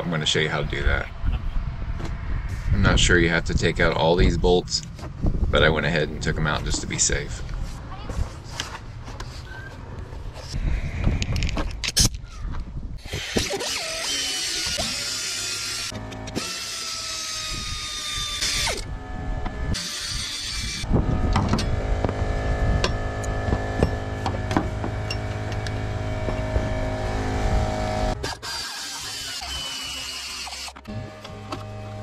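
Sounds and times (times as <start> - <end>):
air ratchet whining: 13.0 - 31.6.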